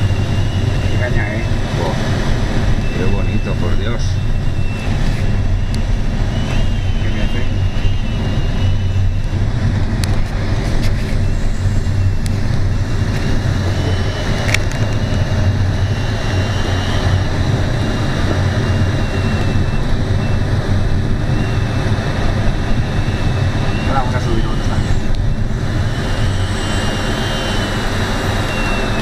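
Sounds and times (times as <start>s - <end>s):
faint high wavering tone: 22.7s - 29.0s.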